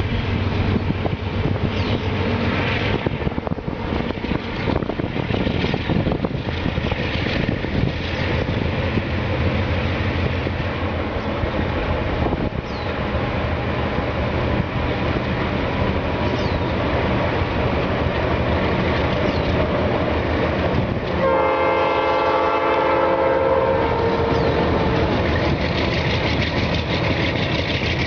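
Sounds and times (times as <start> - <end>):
train rumbling: 0.0 - 28.0
train horn blast: 21.2 - 25.1.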